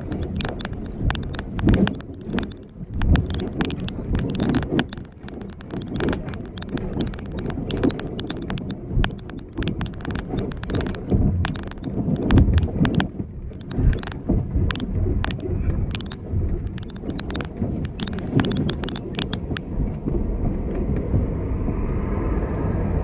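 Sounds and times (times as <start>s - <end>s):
short clicks and knocks: 0.0s - 19.7s
car and tyres rumbling: 0.0s - 23.0s.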